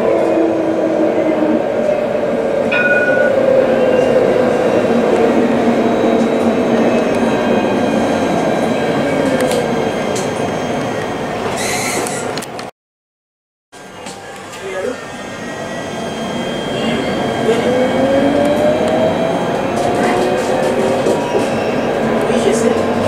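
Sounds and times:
tram rumbling on rails: 0:00.0 - 0:12.7, 0:13.8 - 0:23.0
tram motor whine: 0:13.8 - 0:23.0.

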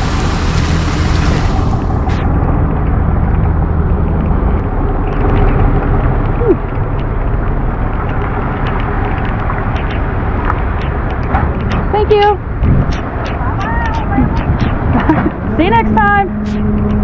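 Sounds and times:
heavy rain hissing: 0:00.0 - 0:02.2
truck engine running: 0:00.0 - 0:17.0.

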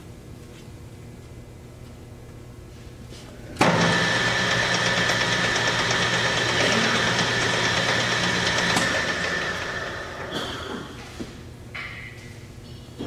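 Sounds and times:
lathe running with high whine: 0:03.6 - 0:10.4.

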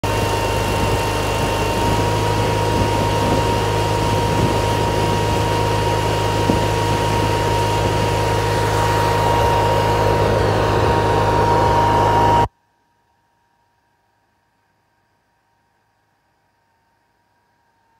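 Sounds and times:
generator engine humming: 0:00.0 - 0:12.5
thin steady whine: 0:00.0 - 0:17.9.

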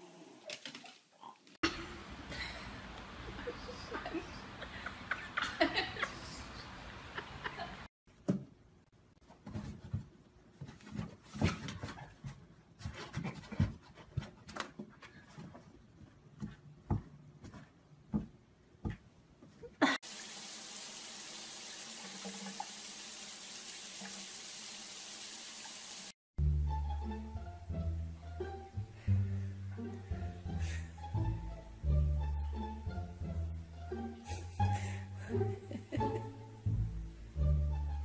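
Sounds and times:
shower water running into bathtub: 0:20.0 - 0:26.2.

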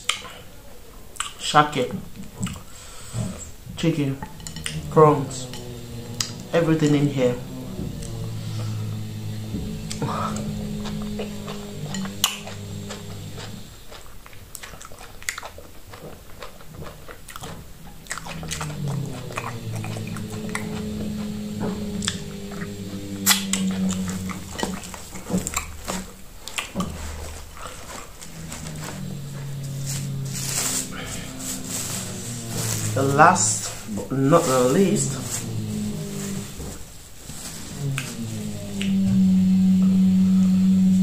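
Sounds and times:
low hum: 0:03.0 - 0:14.0, 0:16.8 - 0:41.0
wet chewing and lip-smacking: 0:10.8 - 0:20.8, 0:22.0 - 0:28.4.

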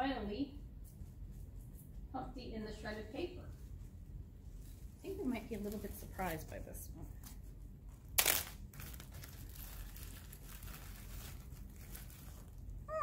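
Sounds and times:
plastic bag of paper crinkling: 0:08.1 - 0:13.0.

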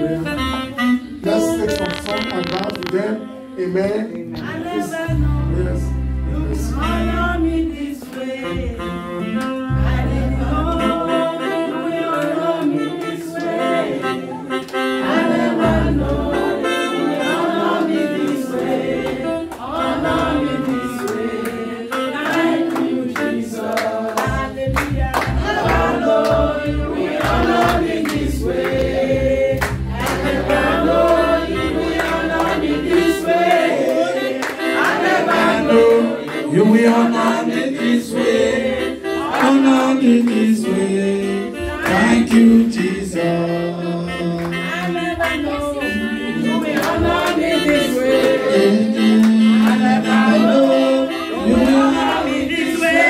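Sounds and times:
band accompaniment: 0:00.0 - 0:53.0
group singing gospel song: 0:04.4 - 0:53.0
steady bass beat: 0:24.2 - 0:33.2.

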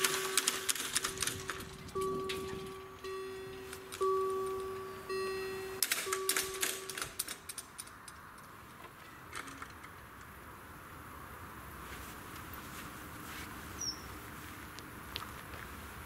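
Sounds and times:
level-crossing warning bell: 0:00.0 - 0:07.8.

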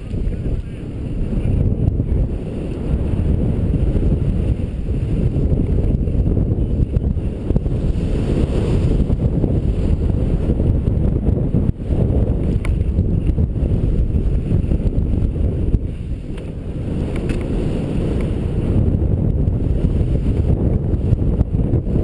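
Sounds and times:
wind buffeting microphone: 0:00.0 - 0:22.0
skis sliding over snow: 0:07.4 - 0:10.5.

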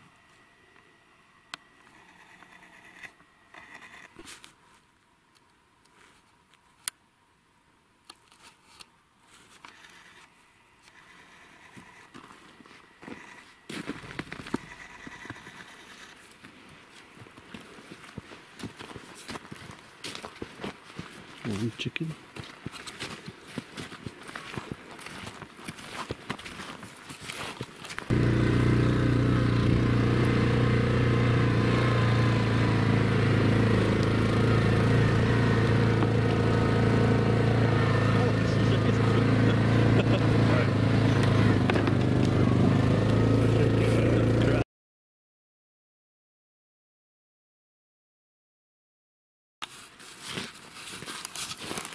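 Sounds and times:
footsteps on snow: 0:04.2 - 0:04.9, 0:10.9 - 0:30.1, 0:49.6 - 0:51.9
off-road vehicle engine running: 0:13.1 - 0:15.9, 0:28.1 - 0:44.6
twigs crackling underfoot: 0:49.6 - 0:51.9.

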